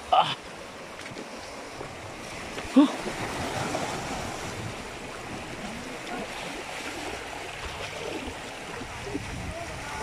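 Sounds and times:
waves washing: 0.0 - 10.0
wind noise on microphone: 7.5 - 10.0.

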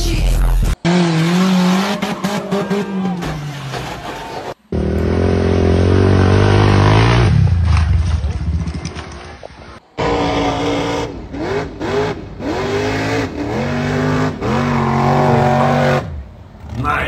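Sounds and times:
quad bike engine revving: 4.7 - 9.0.

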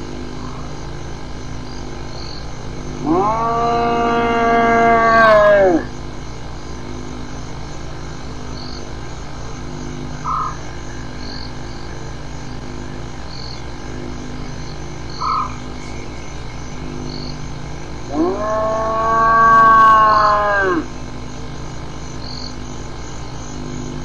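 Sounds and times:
hyena whoop: 3.0 - 5.9, 18.1 - 20.9.

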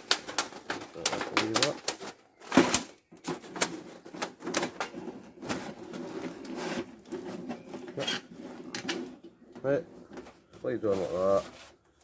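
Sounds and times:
metal scraping on metal: 4.9 - 10.2.

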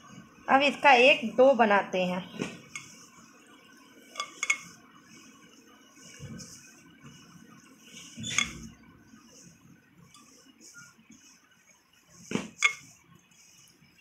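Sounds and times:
spoon stirring cookie dough: 4.2 - 4.8, 12.5 - 13.0.

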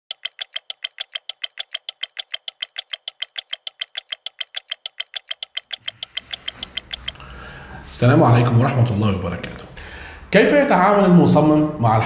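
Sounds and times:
rapid crisp ticking: 0.1 - 7.2.

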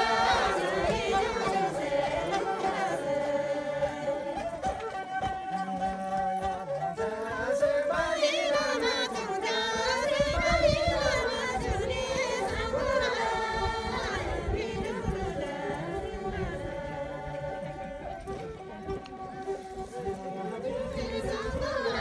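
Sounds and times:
women singing folk song: 0.0 - 22.0.

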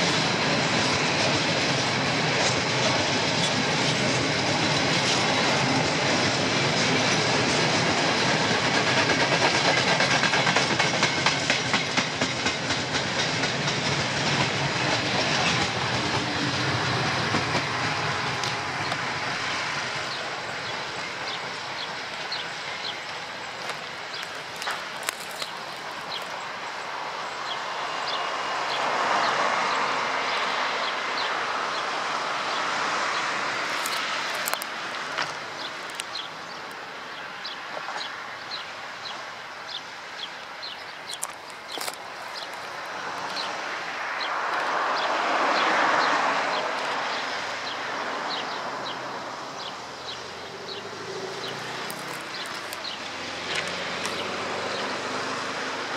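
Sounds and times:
train wheels rolling on tracks: 0.0 - 55.9
rushing noise: 12.7 - 55.9
insects chirping: 19.5 - 28.4, 33.3 - 44.7, 48.9 - 54.9.

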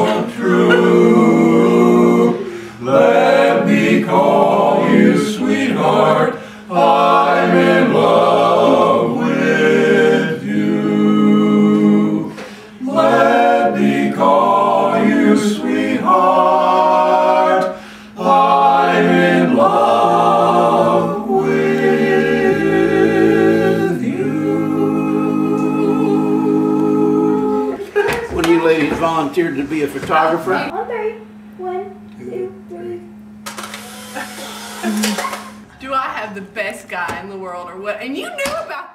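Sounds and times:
barbershop quartet singing: 0.0 - 28.6.

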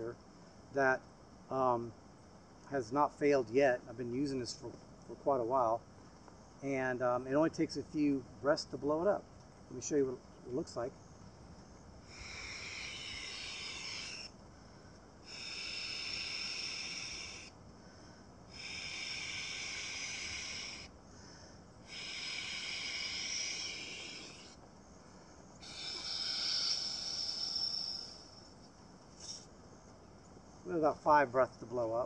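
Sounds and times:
man blowing into pillow valve: 12.0 - 14.3, 15.2 - 17.6, 18.5 - 24.6, 25.6 - 28.4.

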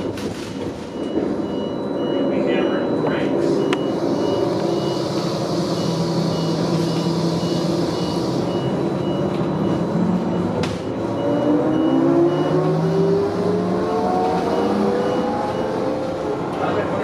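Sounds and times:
high beep repeating: 0.9 - 13.1.

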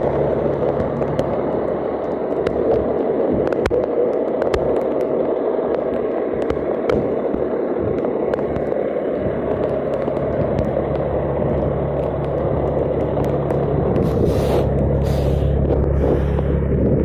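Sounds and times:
constant hiss: 0.0 - 17.0
diesel engine idling: 10.8 - 17.0
short hisses: 14.1 - 16.5.

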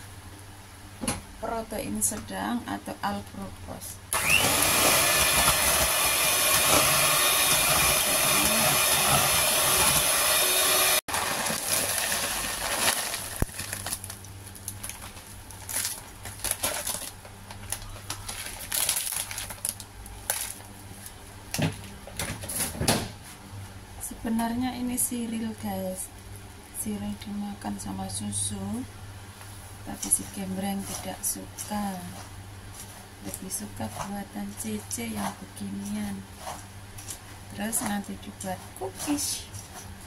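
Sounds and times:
electric hand mixer running: 4.2 - 13.4
cereal poured from a bag: 11.1 - 14.2.

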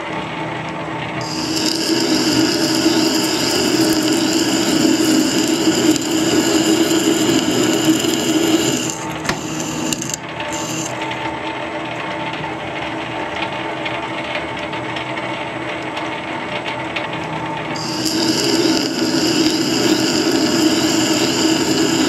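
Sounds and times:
ringing metal cutting: 1.2 - 11.0, 17.8 - 22.0
lathe running: 1.2 - 11.4, 17.7 - 22.0.

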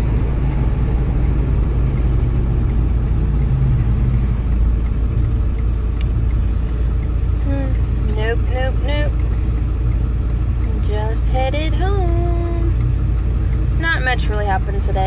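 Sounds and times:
car cabin road and engine rumble: 0.0 - 15.0
person speaking: 7.4 - 9.2.

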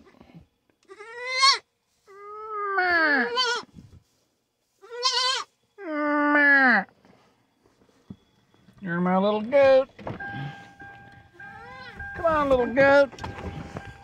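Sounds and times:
baby goat bleating: 0.8 - 3.7, 4.8 - 5.5, 11.6 - 12.0.

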